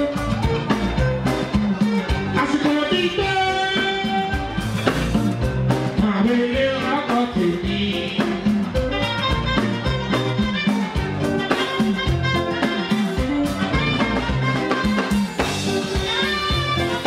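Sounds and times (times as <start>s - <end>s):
electric guitars: 0.0s - 17.0s
hand drums playing a beat: 0.0s - 17.0s
man singing into microphone: 2.3s - 4.6s, 5.9s - 8.8s.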